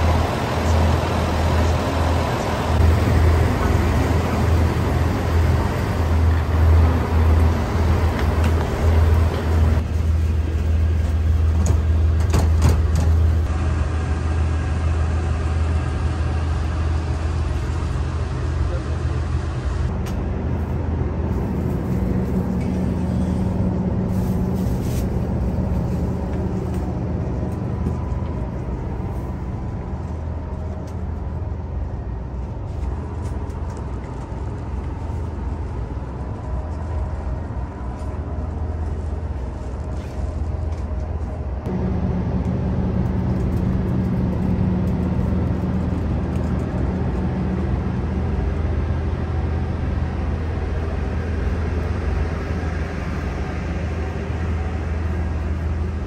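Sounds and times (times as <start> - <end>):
diesel engine idling: 0.0 - 12.2.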